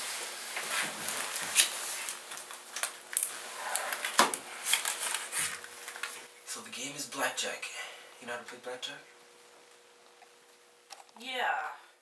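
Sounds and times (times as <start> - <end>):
playing cards rustling and clicking: 0.6 - 6.3.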